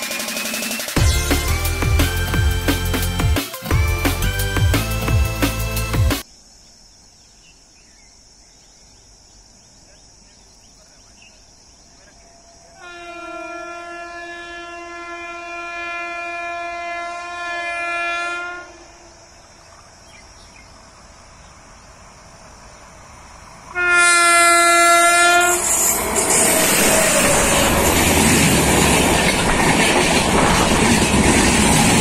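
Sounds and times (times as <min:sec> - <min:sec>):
train rushing and rumbling: 0:00.0 - 0:06.1, 0:21.0 - 0:32.0
locomotive horn blasts: 0:12.8 - 0:19.0, 0:23.7 - 0:26.0.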